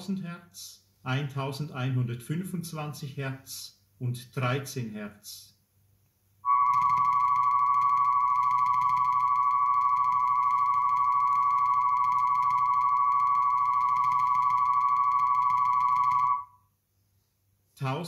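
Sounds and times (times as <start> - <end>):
faint low hum: 0.0 - 18.0
steady high test tone with wobble: 6.4 - 16.6.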